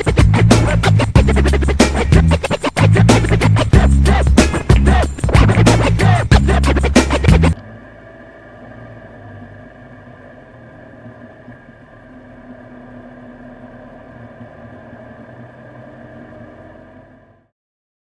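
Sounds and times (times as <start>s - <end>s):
car engine at low revs: 7.5s - 17.5s.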